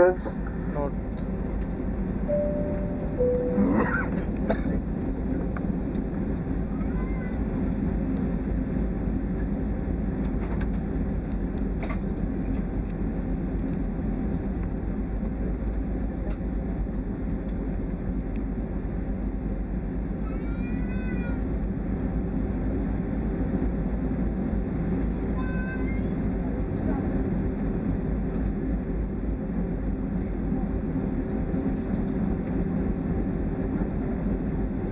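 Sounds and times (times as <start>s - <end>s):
airliner cabin rumble: 0.0s - 34.9s
short high rising call: 2.3s - 4.0s.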